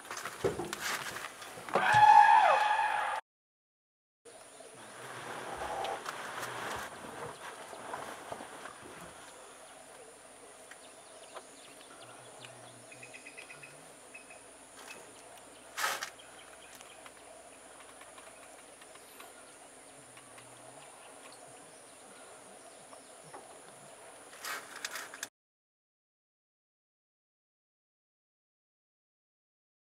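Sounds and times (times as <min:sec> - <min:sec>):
faint outdoor ambience: 0:04.3 - 0:25.3.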